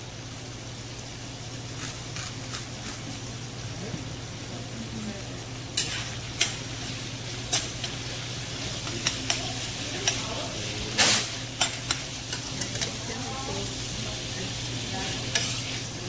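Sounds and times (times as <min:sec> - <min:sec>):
beef sizzling in hot oil: 0:00.0 - 0:16.0
spoon scraping pan: 0:05.8 - 0:13.7, 0:14.9 - 0:15.9
metal spoon clinking on pan: 0:07.5 - 0:08.0, 0:08.8 - 0:10.3, 0:11.6 - 0:13.2, 0:15.3 - 0:15.8.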